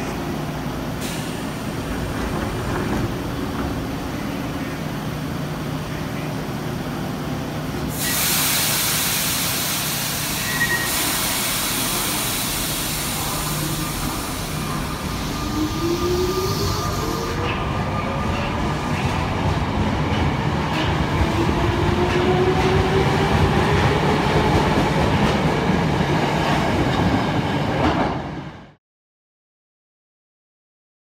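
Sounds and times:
subway train humming: 0.0 - 28.8
loud air hiss: 7.9 - 17.4.

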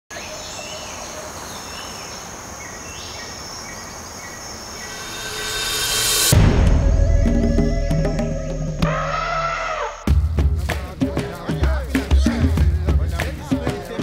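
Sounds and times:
insect calls: 0.1 - 11.6
steady hiss: 3.9 - 6.4
rising whoosh: 4.6 - 10.2.

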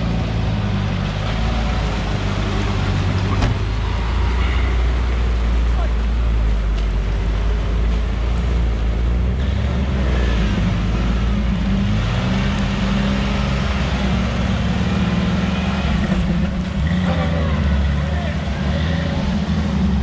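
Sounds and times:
off-road engine running: 0.0 - 20.0.

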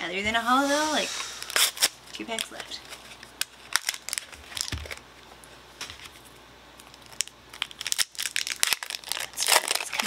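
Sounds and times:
foil wrapper crinkling: 1.3 - 5.1, 5.8 - 10.0.

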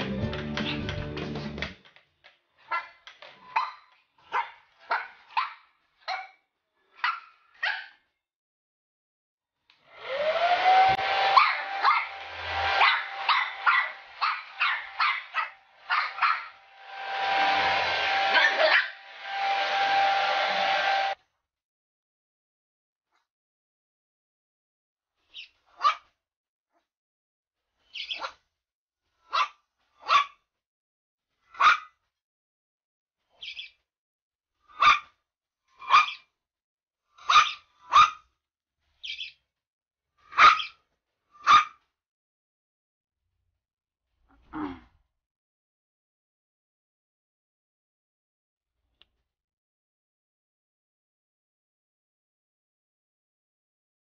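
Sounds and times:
puppy barking and yipping: 2.6 - 6.4, 7.0 - 8.0, 11.0 - 16.6, 17.5 - 19.0, 25.8 - 26.0, 29.3 - 30.4, 31.6 - 31.9, 34.7 - 35.1, 35.8 - 36.2, 37.2 - 38.2, 40.3 - 40.7, 41.4 - 41.8
hair dryer blowing: 9.7 - 21.2.

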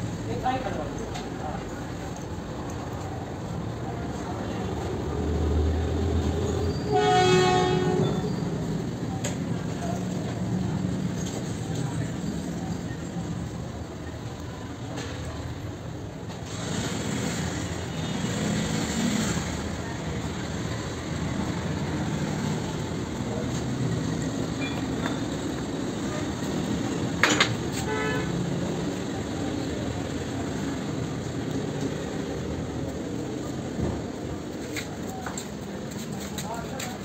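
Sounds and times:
street traffic: 0.0 - 37.0
vehicle horn toot: 6.8 - 8.3, 27.8 - 28.4.

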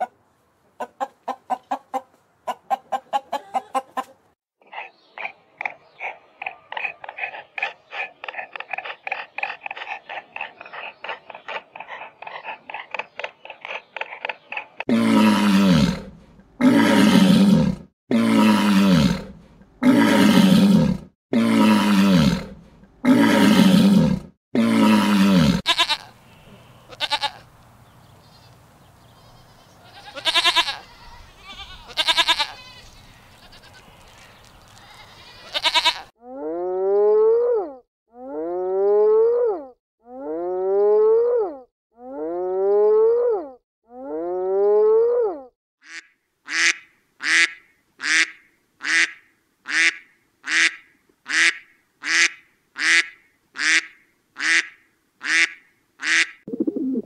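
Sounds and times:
farm animal calls: 0.8 - 17.8, 24.9 - 27.5, 28.1 - 37.6
drawn-out animal calls: 29.2 - 36.1
duck quacks: 45.8 - 56.4.

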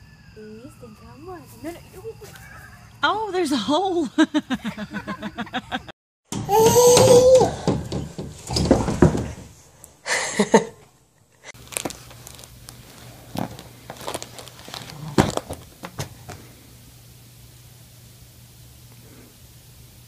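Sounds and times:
foil balloon crinkling: 11.6 - 16.6.

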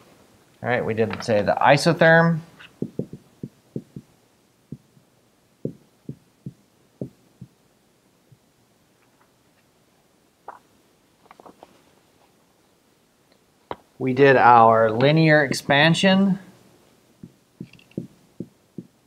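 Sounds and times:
marker tapping on whiteboard: 2.6 - 4.1, 5.6 - 7.6, 17.2 - 19.0
faint clicks and rustles: 10.4 - 12.4.

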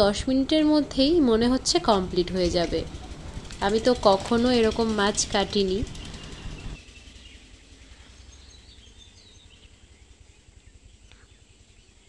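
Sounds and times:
faint bird chirps: 6.0 - 12.0.

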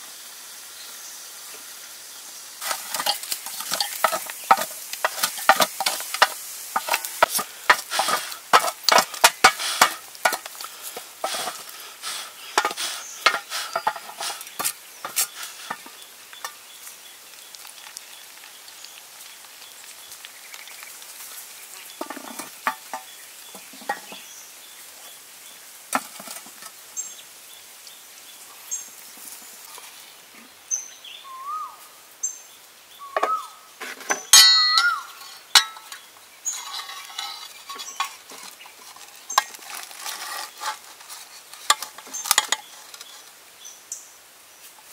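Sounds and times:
stick scraping metal pot lid: 2.6 - 16.6, 22.0 - 24.2, 25.9 - 26.7, 33.2 - 43.3
sharp metal clink: 34.4 - 35.9.

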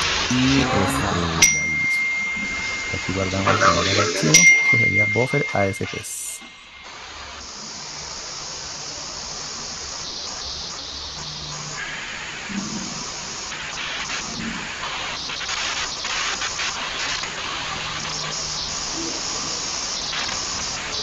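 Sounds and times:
steady background hiss: 0.0 - 21.0.

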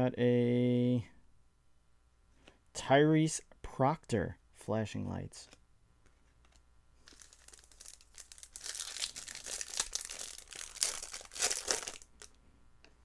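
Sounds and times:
foil wrapper tearing and crinkling: 7.0 - 12.4.

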